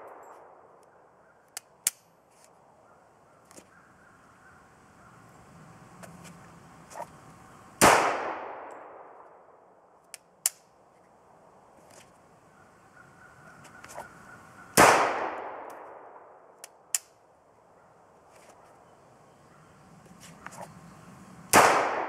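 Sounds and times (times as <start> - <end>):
pistol handling clicks: 1.5 - 2.1, 10.0 - 10.7, 15.6 - 15.9, 16.6 - 17.2
pistol shots with echo: 7.8 - 9.4, 14.8 - 16.4, 21.5 - 22.0.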